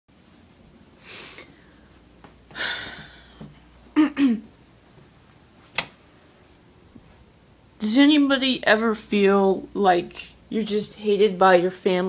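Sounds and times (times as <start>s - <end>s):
person breathing: 1.0s - 3.6s
sharp click: 5.7s - 6.0s.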